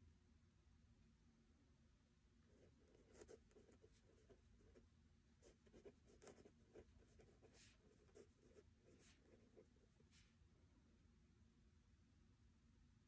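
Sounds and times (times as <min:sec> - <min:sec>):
pen scratching on paper: 0:02.5 - 0:04.8, 0:05.4 - 0:10.2.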